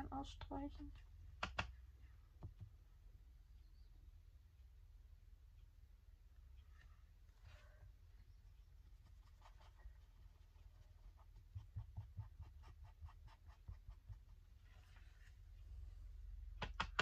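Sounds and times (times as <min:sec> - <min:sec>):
pencil strokes on paper: 0:08.8 - 0:15.6.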